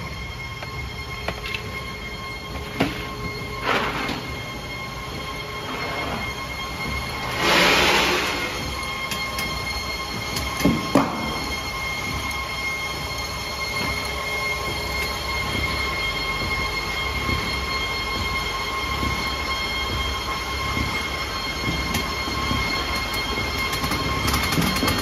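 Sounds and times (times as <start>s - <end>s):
high-pitched whine: 0.0s - 25.0s
machine humming: 0.0s - 25.0s.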